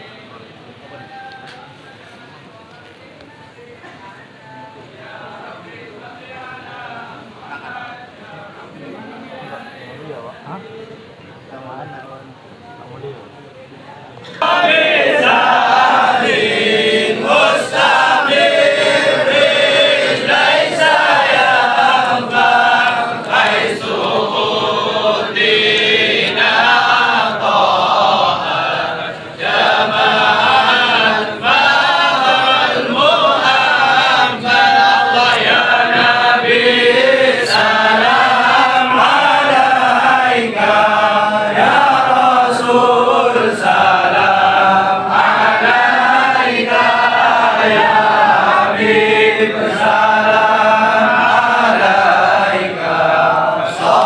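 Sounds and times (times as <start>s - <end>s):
men chanting in unison: 14.3s - 54.0s.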